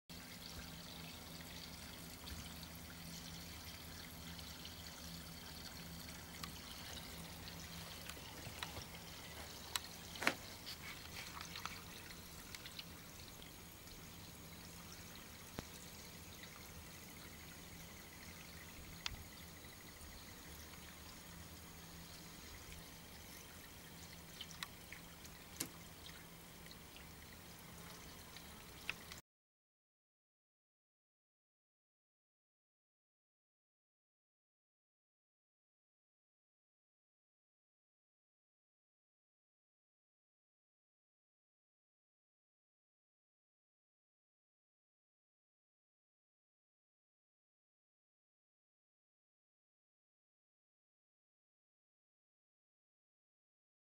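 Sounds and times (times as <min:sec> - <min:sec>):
water pouring over spillway: 0:00.1 - 0:29.1.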